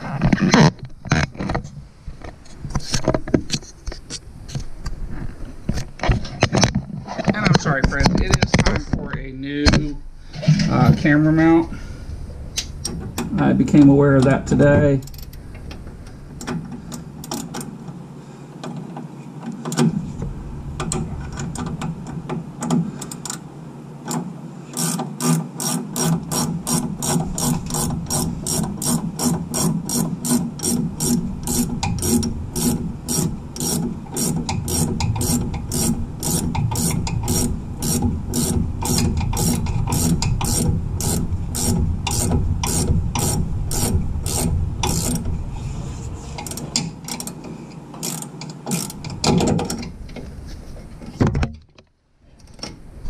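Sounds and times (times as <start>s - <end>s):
hand ratchet clicking: 12.6s - 15.8s, 16.4s - 17.7s, 20.8s - 23.4s, 24.1s - 45.3s, 46.4s - 50.0s.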